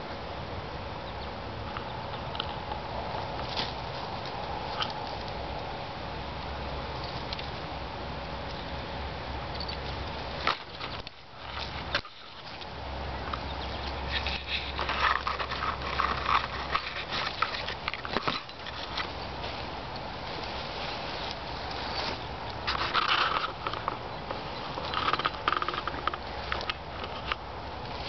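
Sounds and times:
bush branches rustling and crackling: 1.8 - 28.0
twigs snapping: 2.1 - 5.8, 9.7 - 20.6, 21.2 - 28.0.

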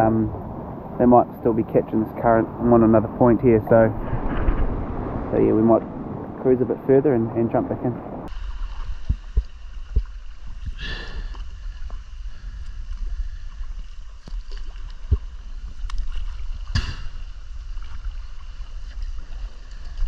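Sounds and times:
steady low rumble: 0.0 - 20.0
paddle splashing through water: 8.3 - 20.0.

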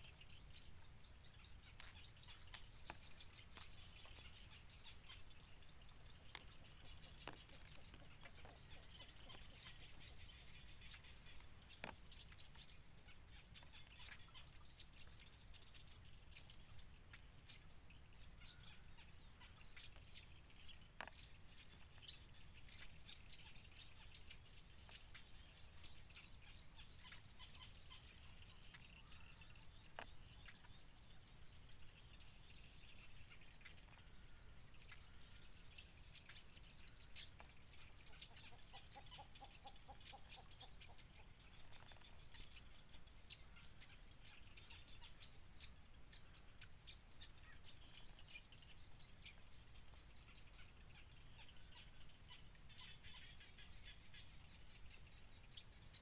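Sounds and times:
high-pitched insect trill: 0.0 - 56.0.

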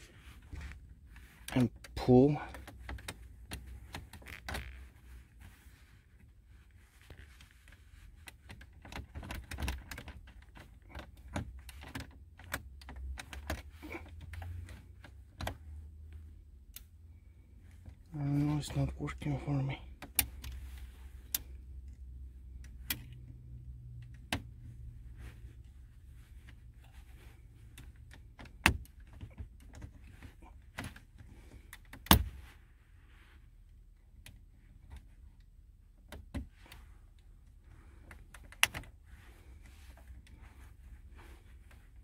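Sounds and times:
low steady hum: 0.0 - 42.0.

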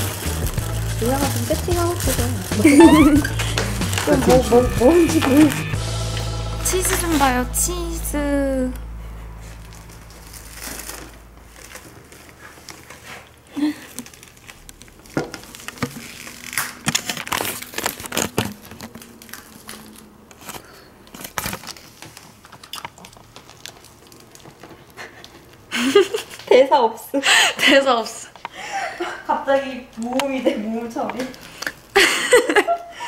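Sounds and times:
crinkling handling noise: 0.0 - 5.8, 9.3 - 26.5, 29.6 - 32.6.

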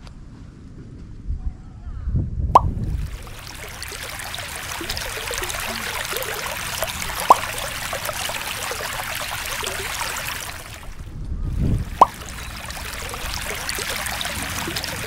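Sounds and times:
sharp water plop: 2.6 - 11.0, 11.6 - 15.0
stream rippling over pebbles: 2.6 - 15.0.

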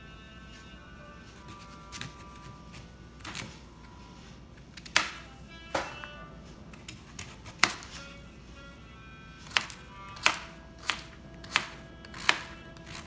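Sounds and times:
background music: 0.0 - 13.0
knife cutting on cutting board: 6.9 - 8.1.

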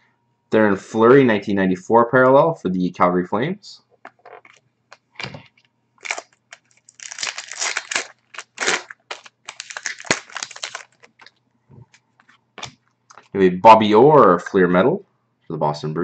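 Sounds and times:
foil crackling: 6.0 - 11.3
foil wrapper tearing and crinkling: 6.0 - 11.3.

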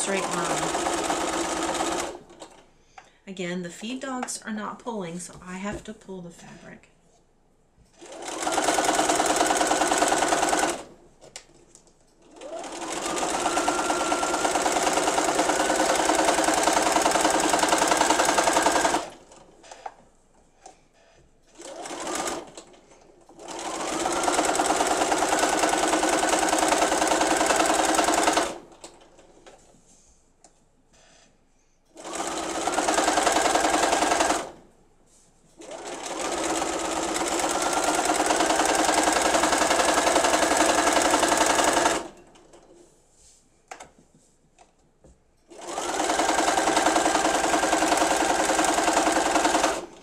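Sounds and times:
sewing machine whirring: 0.0 - 2.7, 7.9 - 11.4, 12.2 - 20.0, 20.6 - 29.6, 31.9 - 34.6, 35.6 - 42.8, 45.5 - 50.0.

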